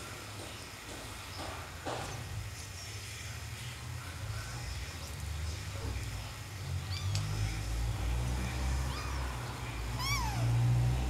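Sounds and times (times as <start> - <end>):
kitten mewing: 6.8 - 7.4, 8.7 - 10.9.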